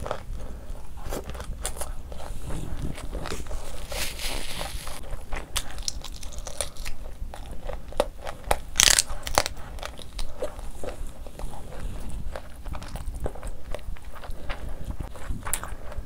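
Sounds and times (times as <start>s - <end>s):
crunchy chewing: 0.0s - 16.0s.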